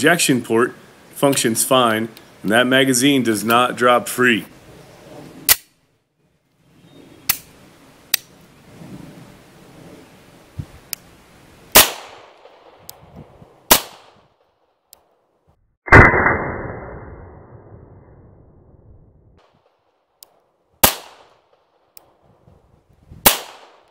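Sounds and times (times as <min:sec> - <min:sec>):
pistol shots: 0:11.7 - 0:12.8, 0:13.7 - 0:14.2, 0:20.8 - 0:21.6, 0:23.2 - 0:23.9.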